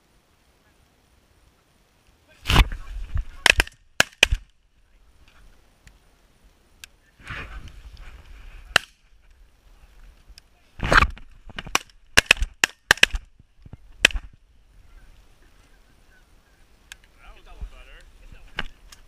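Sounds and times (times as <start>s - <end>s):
shotgun shots: 3.4s - 4.4s, 11.7s - 13.2s.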